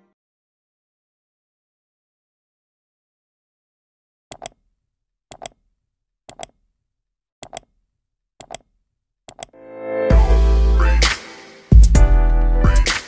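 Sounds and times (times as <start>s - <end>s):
music: 9.6s - 13.0s.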